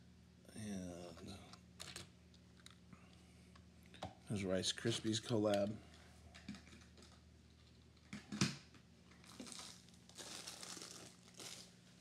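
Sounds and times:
low steady hum: 0:00.0 - 0:12.0
rustling and crinkling: 0:09.1 - 0:12.0.

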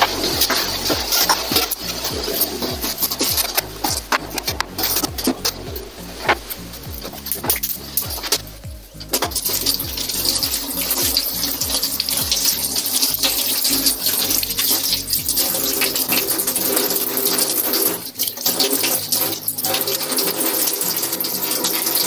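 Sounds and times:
water splashing: 0:00.0 - 0:22.0
tap water running into sink: 0:09.1 - 0:22.0.

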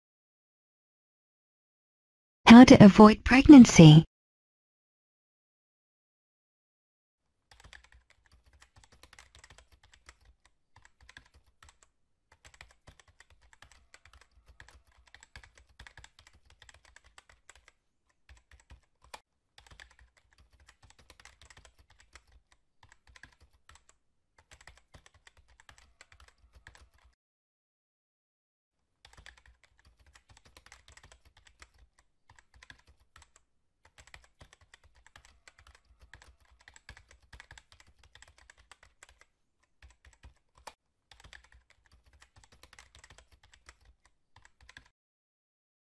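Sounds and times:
keyboard typing clicks: 0:29.1 - 0:44.9.

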